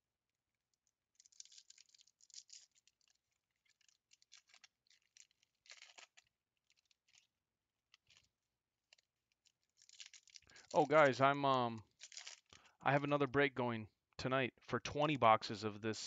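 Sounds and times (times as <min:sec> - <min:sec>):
foil wrapper crinkling and tearing: 0:00.8 - 0:11.1, 0:11.8 - 0:12.7.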